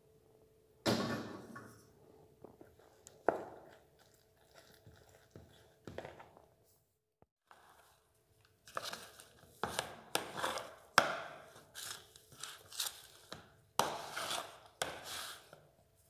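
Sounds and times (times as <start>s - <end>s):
spoon scraping plastic bowl: 9.6s - 10.9s, 11.5s - 15.6s.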